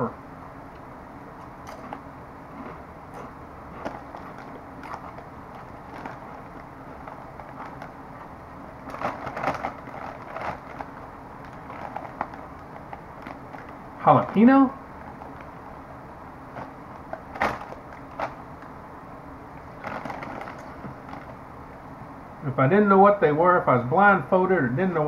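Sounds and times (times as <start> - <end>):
chips being chewed: 1.4 - 14.4, 19.8 - 21.4
chip bag crinkling: 1.4 - 15.6, 16.5 - 18.7, 19.6 - 21.4.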